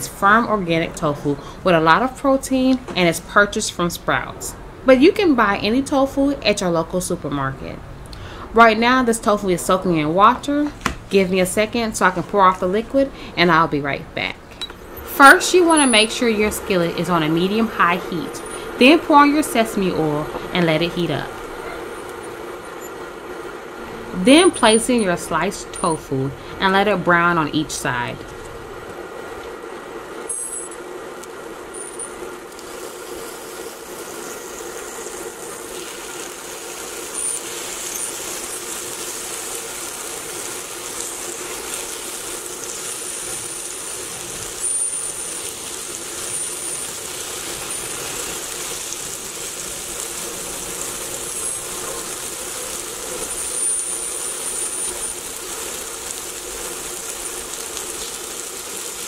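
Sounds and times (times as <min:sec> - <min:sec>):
steady hum: 0:00.0 - 0:59.0
tofu sizzling in oil: 0:32.4 - 0:59.0.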